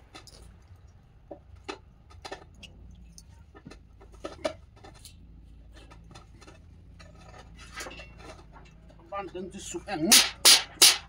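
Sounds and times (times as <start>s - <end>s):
steel clamps clicking and knocking: 10.1s - 11.0s.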